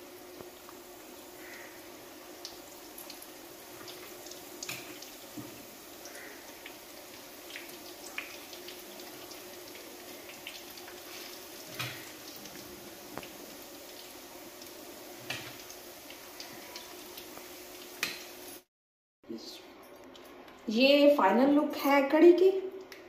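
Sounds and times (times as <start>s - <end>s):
batter sizzling in hot oil: 0.0s - 18.7s
oil crackling and popping: 0.2s - 18.6s.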